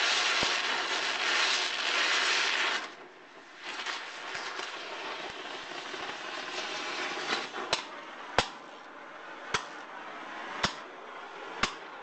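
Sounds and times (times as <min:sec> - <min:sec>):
torch flame hissing: 0:00.0 - 0:12.0
sharp cracks: 0:03.6 - 0:08.6, 0:10.6 - 0:10.9, 0:11.6 - 0:11.9.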